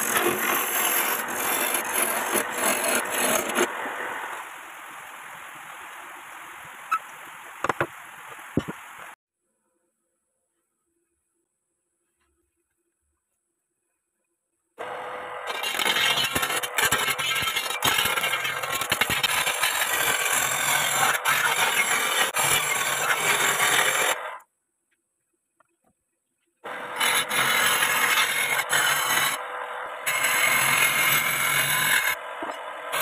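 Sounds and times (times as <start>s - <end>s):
lathe tool scraping spinning wood: 0.0s - 4.0s, 14.8s - 24.4s, 26.7s - 33.0s.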